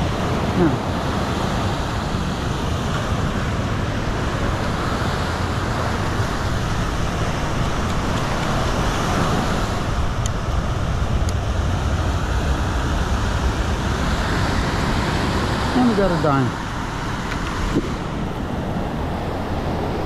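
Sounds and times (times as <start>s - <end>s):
wind and surf rumbling: 0.0s - 20.0s.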